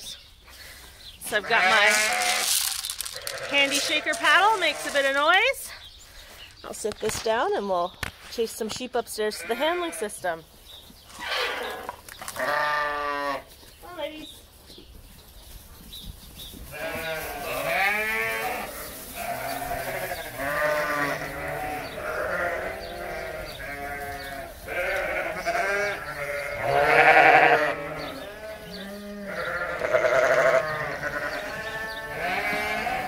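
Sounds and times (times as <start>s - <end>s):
sheep bleating: 1.3s - 5.2s, 9.3s - 10.1s, 11.2s - 13.5s, 16.7s - 33.0s.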